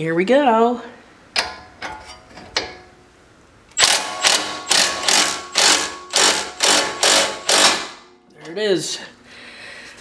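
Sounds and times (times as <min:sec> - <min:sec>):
ratchet wrench clicking: 0:03.8 - 0:07.9.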